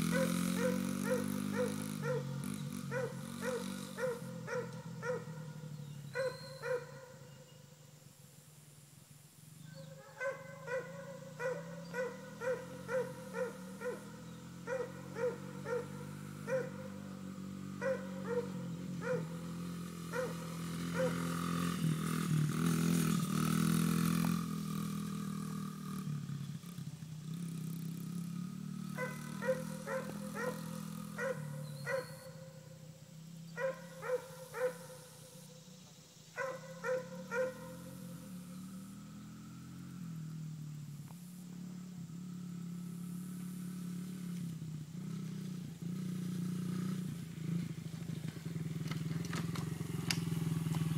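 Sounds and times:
minibike engine running: 0.0s - 7.3s, 9.7s - 50.9s
dog barking: 0.1s - 5.6s, 6.2s - 7.3s, 9.7s - 17.0s, 17.8s - 19.4s, 20.1s - 21.2s, 29.0s - 32.6s, 33.6s - 35.2s, 36.4s - 37.8s.

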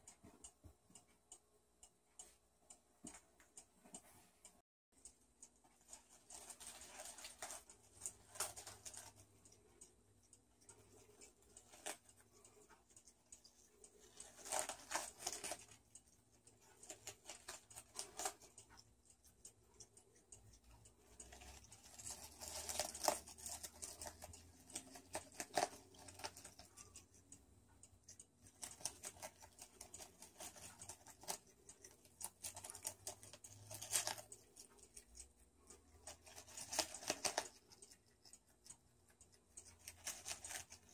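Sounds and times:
animal crunching lettuce: 5.8s - 9.4s, 10.8s - 15.8s, 16.6s - 18.8s, 21.2s - 27.2s, 28.4s - 40.9s.

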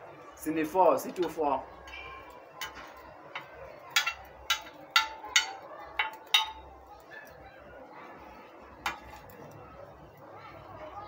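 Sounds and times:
metal spoon tapping glass: 3.4s - 6.7s.

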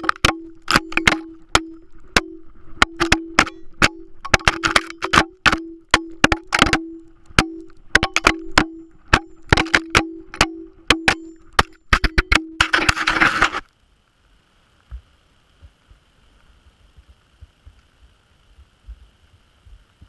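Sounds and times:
steady low tone: 0.0s - 12.7s
camera clattering down rocks: 0.0s - 13.7s.

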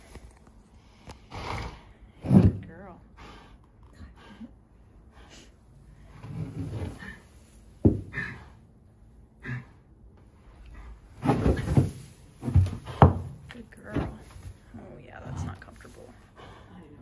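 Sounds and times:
dull thumps: 7.8s - 8.4s, 11.1s - 14.7s
horse rustling in straw: 11.1s - 13.0s.

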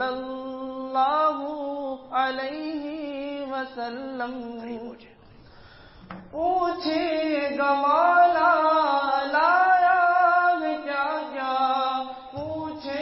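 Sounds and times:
person singing devotional song: 0.0s - 5.1s, 6.3s - 13.0s.

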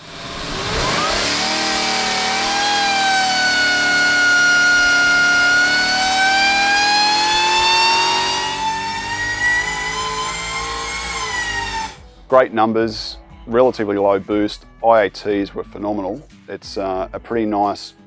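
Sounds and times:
supercharged engine revving: 0.0s - 12.0s.

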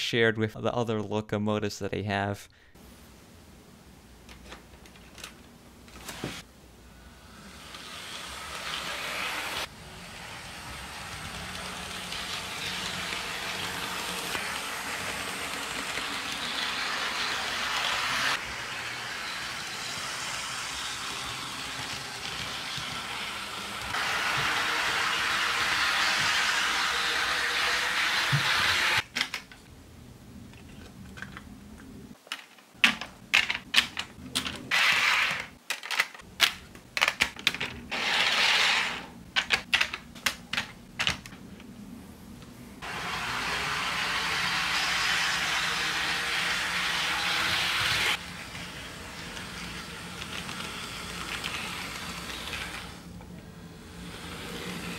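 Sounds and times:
model train rolling on track: 7.3s - 29.0s, 42.8s - 53.1s, 53.8s - 54.9s.

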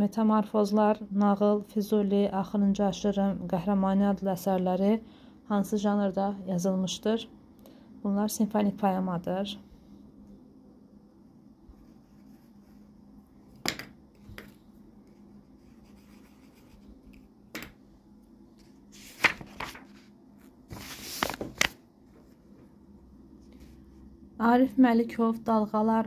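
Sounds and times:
paper and pages rustling: 14.2s - 17.3s, 18.6s - 22.7s.

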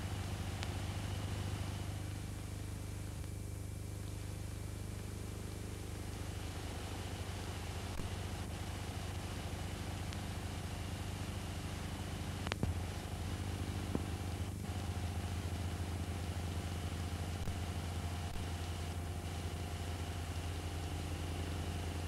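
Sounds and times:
low hum with hiss: 0.0s - 22.0s
faint ticks: 3.1s - 3.4s, 11.9s - 12.8s.

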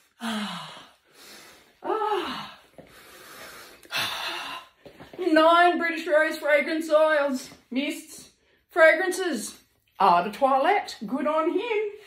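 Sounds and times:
woman gasping: 0.0s - 5.1s.

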